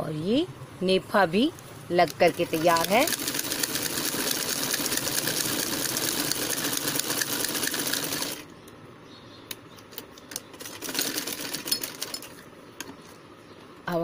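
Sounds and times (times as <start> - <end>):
sewing machine clatter: 2.1 - 8.4, 10.3 - 12.4.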